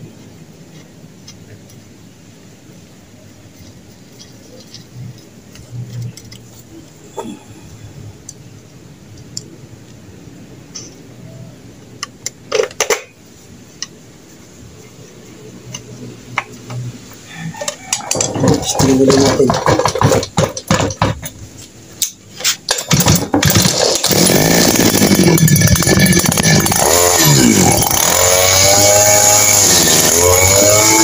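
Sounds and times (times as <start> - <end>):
brush cutter engine: 18.1 - 20.8, 22.9 - 31.0.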